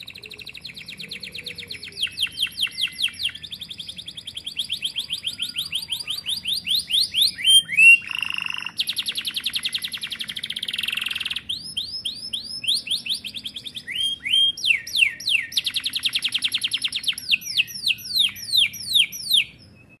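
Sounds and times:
canary singing: 0:00.0 - 0:20.0.

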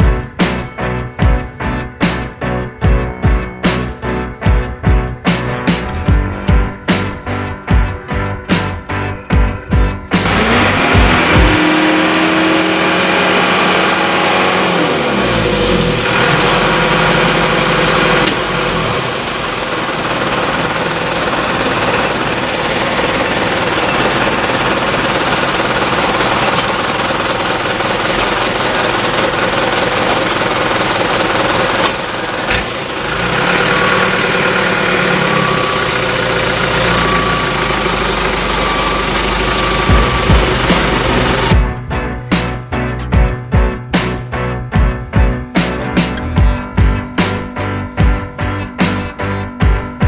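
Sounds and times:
wheels churning in mud: 0:10.2 - 0:41.5.

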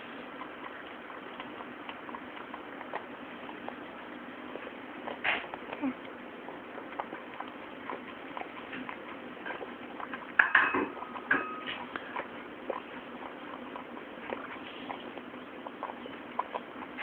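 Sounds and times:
dog chewing and licking: 0:00.0 - 0:17.0
metal bowl clinking: 0:10.4 - 0:11.8.

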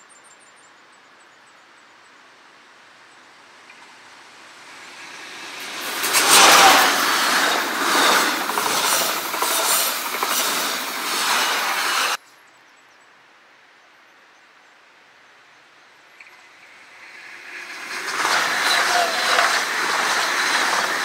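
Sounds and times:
train passing at speed: 0:03.7 - 0:12.2, 0:16.2 - 0:21.0
wheels clattering over rail joints: 0:04.6 - 0:12.2, 0:16.2 - 0:21.0.

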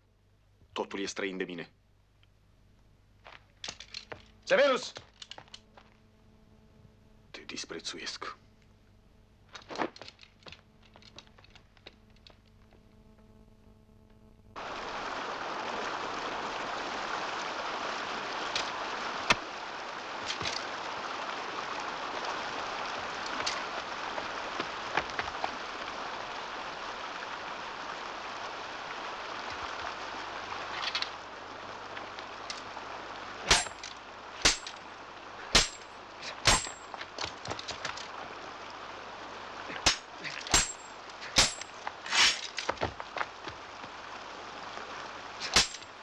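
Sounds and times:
faint room hum: 0:00.0 - 0:46.0
stream rushing over rocks: 0:14.6 - 0:46.0
sharp metallic clanks: 0:33.5 - 0:34.8, 0:35.5 - 0:36.9, 0:39.8 - 0:42.6, 0:45.4 - 0:45.9.

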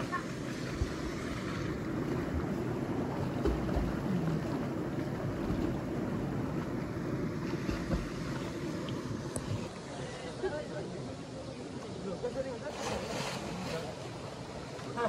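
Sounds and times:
people splashing: 0:00.0 - 0:08.9
stream pouring into pool: 0:00.0 - 0:10.0.

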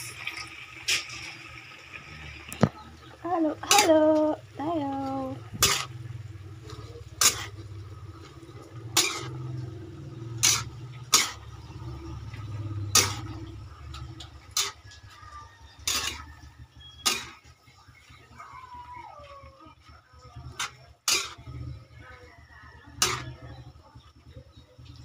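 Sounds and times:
metal utensil knocking on wok: 0:08.9 - 0:14.8, 0:23.0 - 0:23.4.

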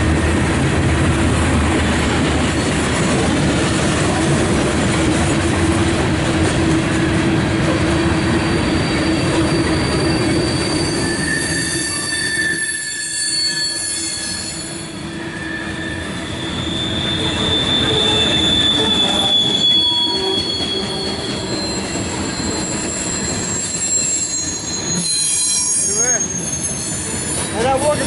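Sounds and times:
train wheels rumbling on rails: 0:00.0 - 0:28.0
wheels squealing: 0:08.0 - 0:28.0.

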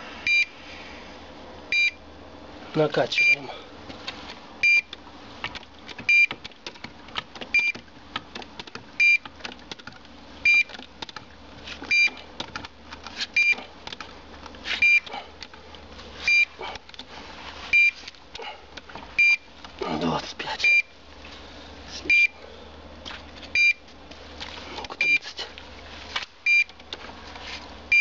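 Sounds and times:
locator short high beeps: 0:00.2 - 0:00.5, 0:01.7 - 0:02.0, 0:14.8 - 0:15.1, 0:19.2 - 0:19.4, 0:22.0 - 0:22.4
irregular clicks and knocks: 0:04.9 - 0:13.2, 0:13.8 - 0:15.8.

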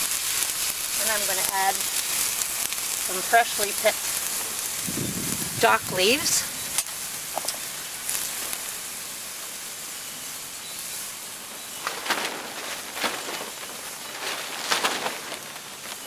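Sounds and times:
water poured into hot pan: 0:00.0 - 0:09.6
water sizzling in hot skillet: 0:00.0 - 0:14.1.

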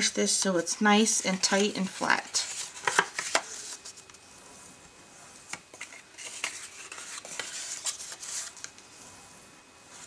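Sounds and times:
paper crinkling: 0:01.2 - 0:04.1, 0:05.4 - 0:08.8
card tapping: 0:02.8 - 0:03.5.

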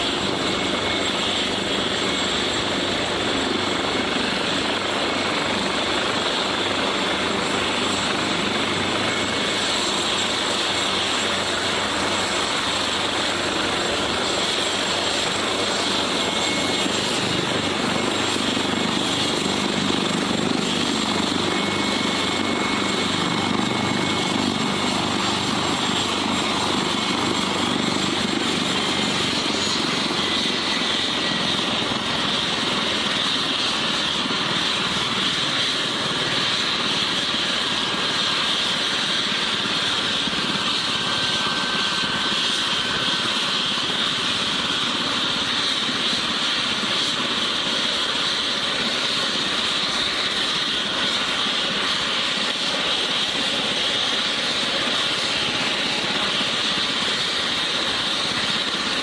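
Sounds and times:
helicopter rotor and engine noise: 0:00.0 - 0:59.0
helicopter turbine whine: 0:00.0 - 0:59.0.

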